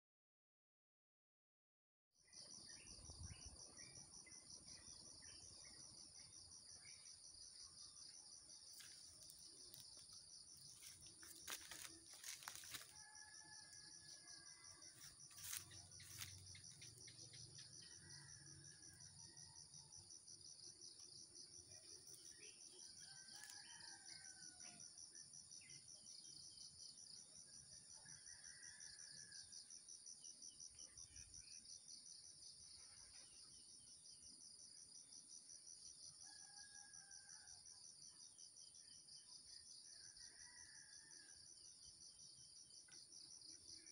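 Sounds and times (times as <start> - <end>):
insect drone: 2.3 - 43.9
insects trilling: 8.7 - 24.8.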